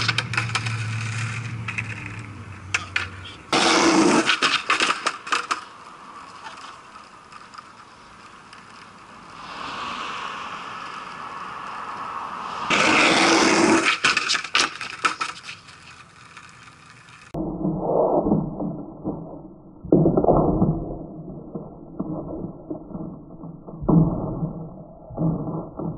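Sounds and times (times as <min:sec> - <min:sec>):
skateboard clattering: 0:00.0 - 0:09.0, 0:12.7 - 0:17.4
skateboard wheels rolling on concrete: 0:00.0 - 0:17.4
soft rushing sound: 0:08.8 - 0:14.0.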